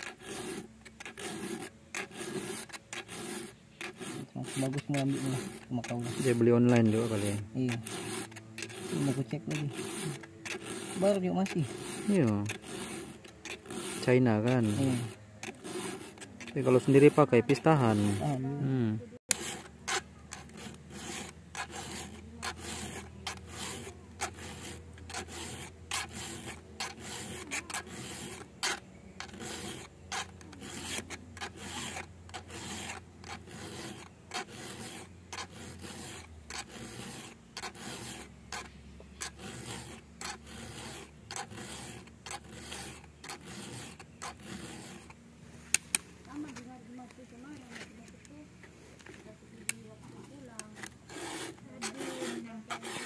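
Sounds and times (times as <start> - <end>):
file rasping on chainsaw chain: 0.0 - 18.5, 19.2 - 45.2, 50.0 - 53.0.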